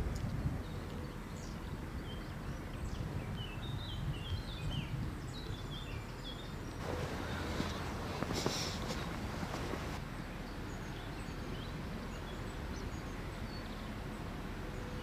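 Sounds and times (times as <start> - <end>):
steady low rumble: 6.7 - 10.5.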